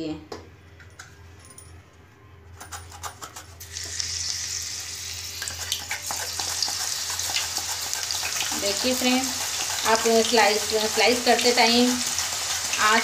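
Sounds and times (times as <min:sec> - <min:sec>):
slices sizzling in hot oil: 0:03.6 - 0:13.0.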